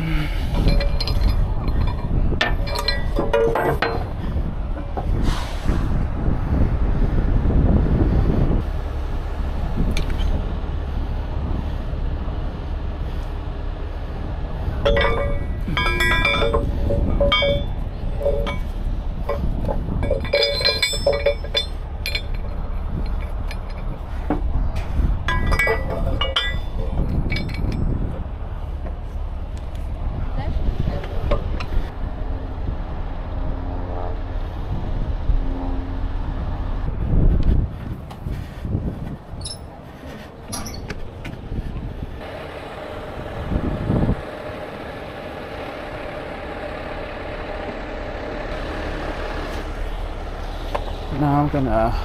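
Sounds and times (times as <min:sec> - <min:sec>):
low rumble: 0:00.0 - 0:42.2
wind buffeting microphone: 0:00.0 - 0:42.4, 0:43.0 - 0:44.9
steel rigging hardware clinking: 0:00.2 - 0:05.2, 0:14.8 - 0:29.8, 0:39.3 - 0:41.1.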